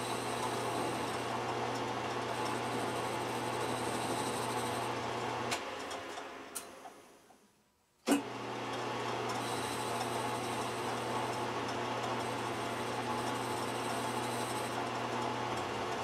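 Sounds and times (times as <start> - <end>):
metal lathe humming: 0.0 - 5.0, 9.4 - 15.9.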